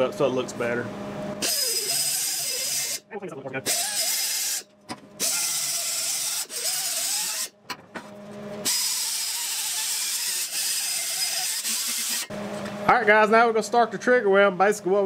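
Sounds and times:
pneumatic grinder grinding metal: 1.4s - 3.0s, 3.7s - 4.6s, 5.2s - 7.5s, 8.6s - 12.3s.

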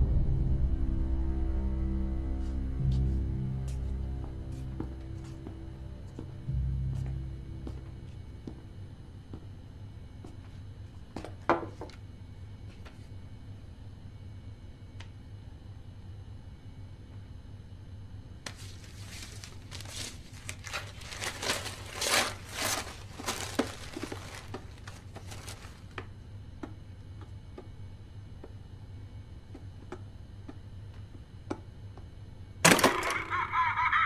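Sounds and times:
tissue paper rustling: 18.5s - 25.9s.

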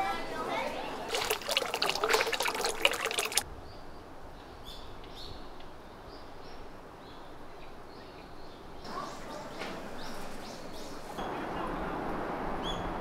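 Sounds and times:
water splashing into stone basin: 1.1s - 3.4s.

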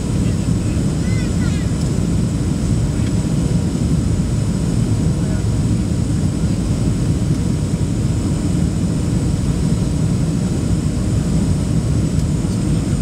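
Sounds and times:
airplane cabin rumble: 0.0s - 13.0s.

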